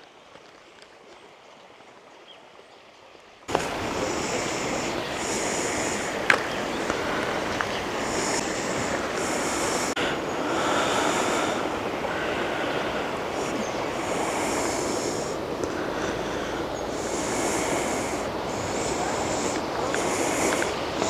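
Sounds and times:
river water rushing: 0.0s - 21.0s.

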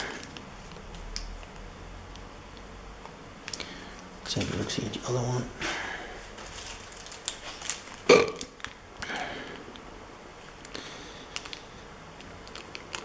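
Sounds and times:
plastic bag of screws rustling: 6.4s - 8.1s.

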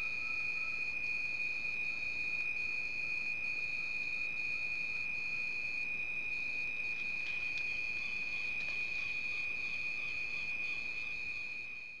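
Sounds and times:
higher pulsing insect trill: 0.0s - 2.3s
crickets trilling: 0.0s - 11.6s.

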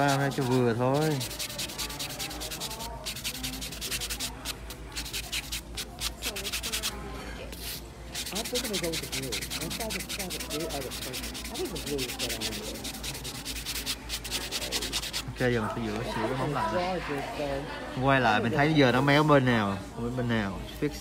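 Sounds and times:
nail buffer rasping on nail: 0.0s - 7.0s, 8.1s - 15.2s.

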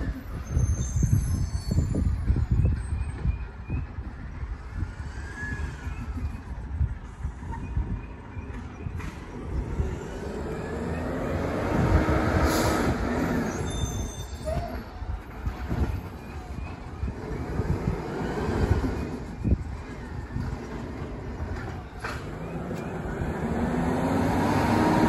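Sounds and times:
brief squeals: 0.0s - 3.9s, 12.4s - 15.0s
garbage truck engine rumble: 0.0s - 25.0s.

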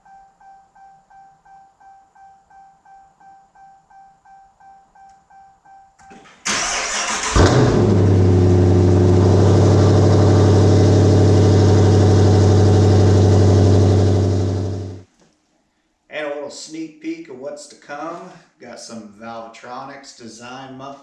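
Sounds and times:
car engine cranking and idling: 6.4s - 15.0s.

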